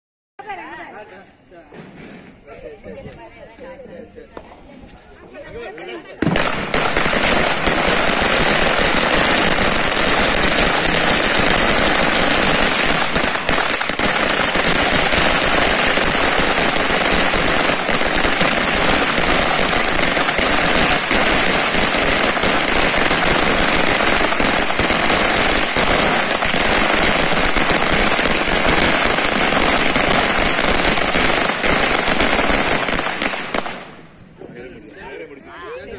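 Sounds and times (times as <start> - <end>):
firecracker string crackling: 5.9 - 34.4.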